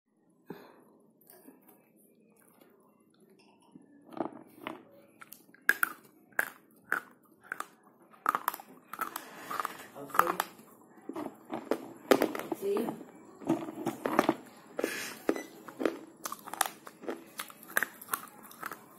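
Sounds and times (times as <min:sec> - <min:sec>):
pencil being chewed with crunches: 0:05.2 - 0:12.0, 0:15.7 - 0:18.9.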